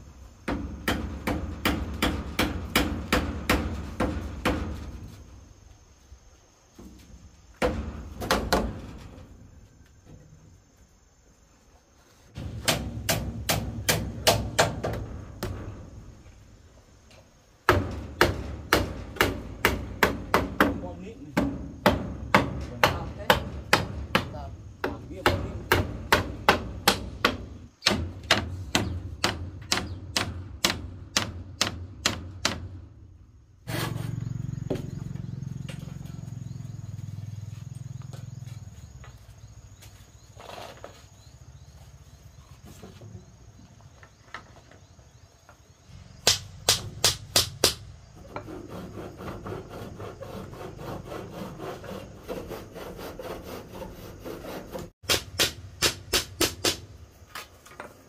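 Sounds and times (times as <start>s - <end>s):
knocks: 7.6s - 9.0s
hammer driving nails into wood: 12.4s - 15.6s, 25.3s - 32.8s, 46.2s - 47.8s, 55.0s - 56.9s.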